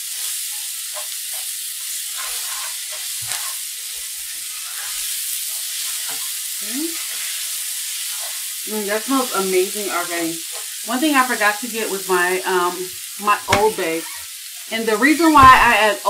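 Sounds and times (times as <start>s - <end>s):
vegetables sizzling in a pot: 0.0s - 16.0s
wooden spoon knocking on pot: 13.5s - 13.8s.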